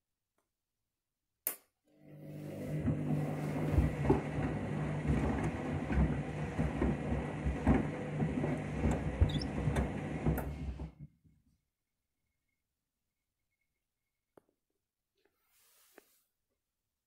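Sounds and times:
low motor hum: 2.1 - 11.0
water sloshing in washing machine: 2.1 - 11.0.

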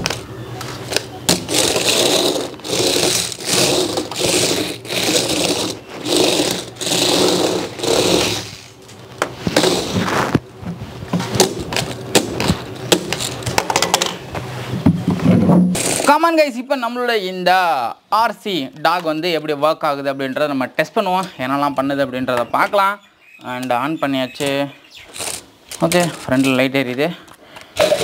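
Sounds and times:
toy electric motors whirring: 0.9 - 8.9, 11.7 - 13.6, 15.8 - 16.2, 25.1 - 26.6.

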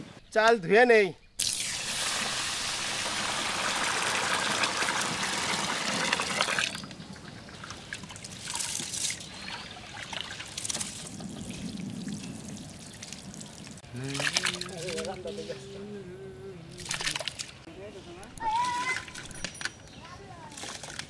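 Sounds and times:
water pouring into a metal pot: 1.4 - 6.9
water trickling and splashing: 1.4 - 15.6, 16.7 - 17.7, 20.5 - 21.0.

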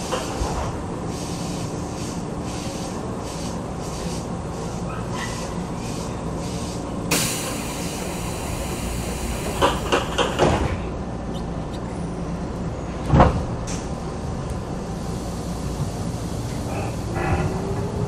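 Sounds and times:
hiss of air: 1.1 - 10.3
sliding doors closing with thud: 9.4 - 10.9, 13.0 - 14.0.

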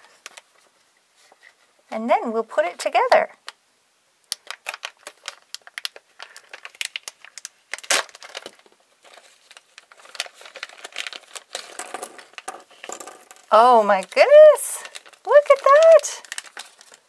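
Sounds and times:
plastic bag crinkling: 4.2 - 17.0.

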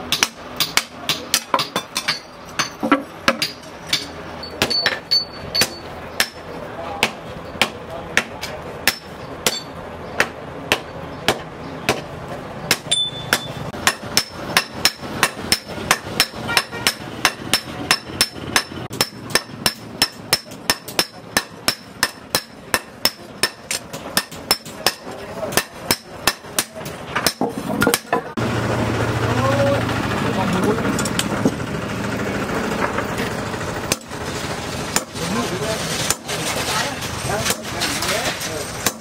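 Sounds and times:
hammer blows on an anvil: 0.1 - 12.0, 12.7 - 28.2.

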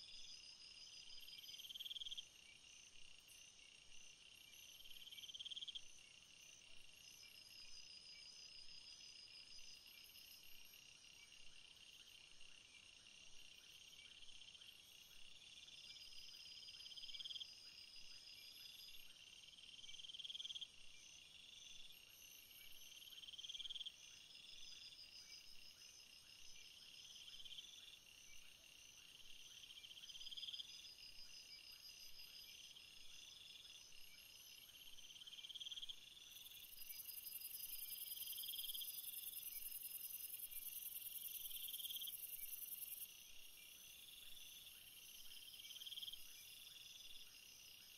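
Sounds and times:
hissing insect call: 32.4 - 47.9.

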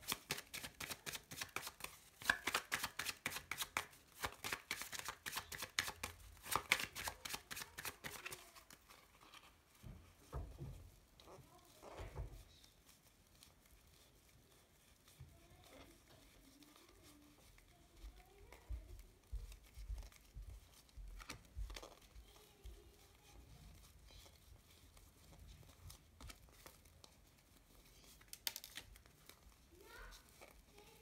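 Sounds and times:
sharp card snaps: 0.0 - 8.4
cards sliding and rustling: 0.0 - 9.8, 18.9 - 29.6.

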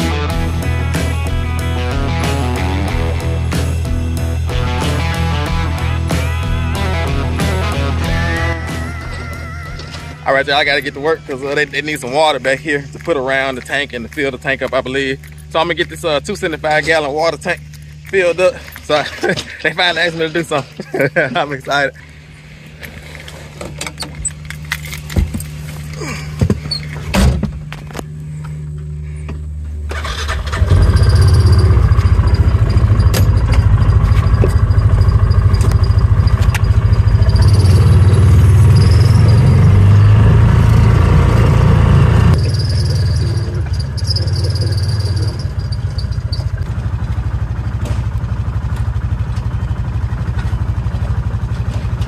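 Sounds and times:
engine running: 0.0 - 52.0
high squeal: 8.2 - 12.5, 30.6 - 46.6.

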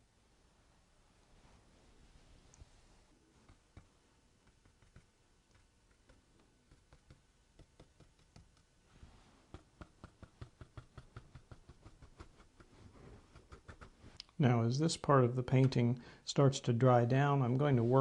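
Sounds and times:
paintbrush tapping on paper: 3.4 - 8.7, 9.5 - 14.0.

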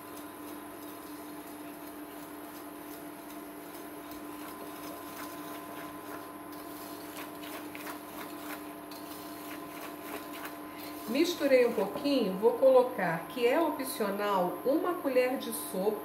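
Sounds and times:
wire whisk beating batter in bowl: 0.0 - 12.5
steady hum: 0.0 - 16.0.

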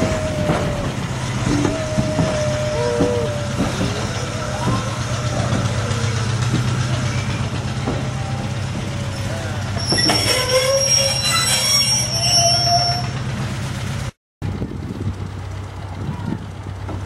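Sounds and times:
train wheels squealing on rails: 0.0 - 13.3
railway coaches rumbling: 0.0 - 17.0.

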